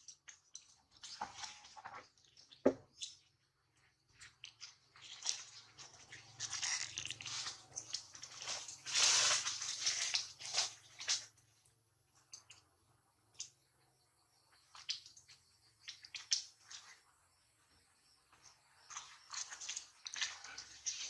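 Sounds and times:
leaves rustling and crackling: 5.2 - 11.2.

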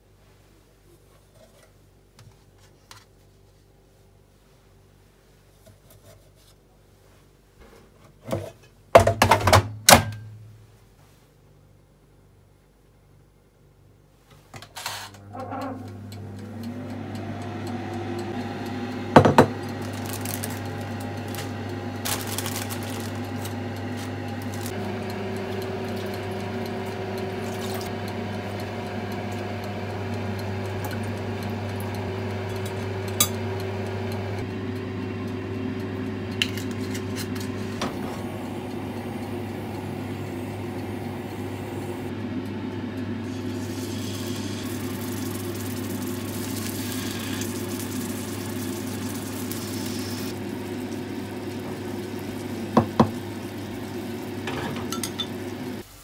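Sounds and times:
microwave oven running: 8.9 - 10.6, 14.6 - 56.0.

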